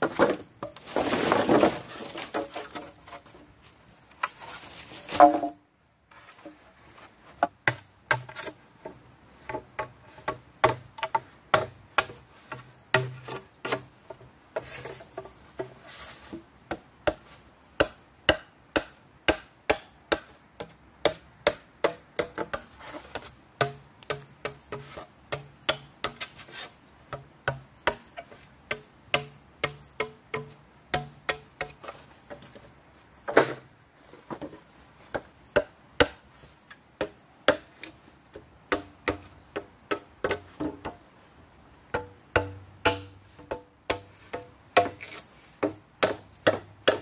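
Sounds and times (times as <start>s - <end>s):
insects droning: 0.0s - 47.0s
tool striking bamboo: 12.9s - 13.9s, 17.8s - 22.7s, 23.6s - 26.3s, 28.7s - 31.8s, 37.0s - 37.9s, 38.7s - 40.9s, 41.9s - 47.0s.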